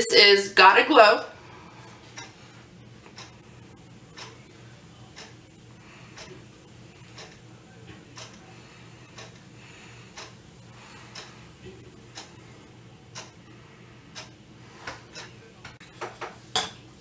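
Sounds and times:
faint steady ticking: 2.1s - 15.4s.

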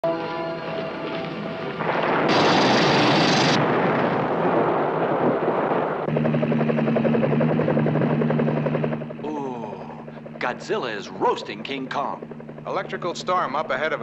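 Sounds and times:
helicopter engine and rotor: 0.1s - 4.2s, 6.0s - 14.0s
loud rushing hissing blast: 1.8s - 4.7s.

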